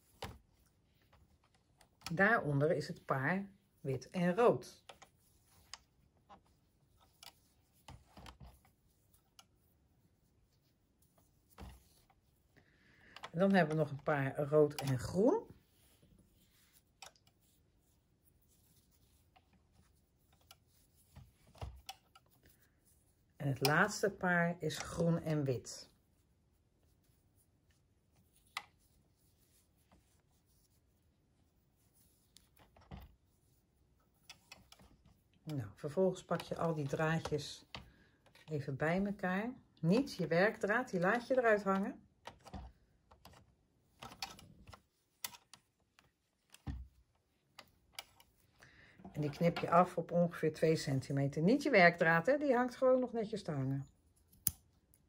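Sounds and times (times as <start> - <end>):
hands rustling yarn: 0.0 - 55.0
faint clicks and taps: 4.8 - 9.6, 15.8 - 22.7, 34.0 - 38.6, 41.1 - 49.7.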